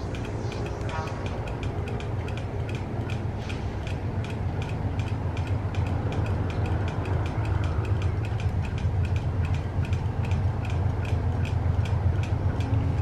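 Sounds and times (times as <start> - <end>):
fast regular ticking: 0.0 - 13.0
locomotive engines rumbling: 0.0 - 13.0.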